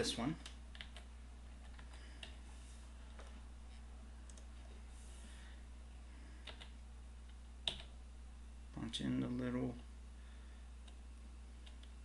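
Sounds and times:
steady low hum: 0.0 - 12.0
keyboard keystrokes: 7.6 - 7.9.

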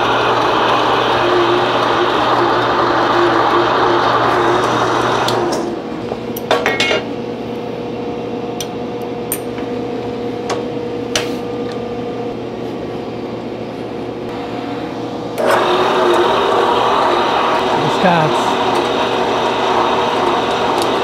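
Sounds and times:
loud steady machine noise: 0.0 - 6.3, 14.1 - 21.0.

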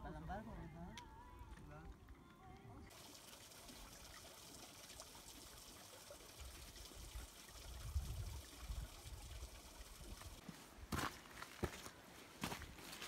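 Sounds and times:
water trickling into pool: 1.8 - 10.4.

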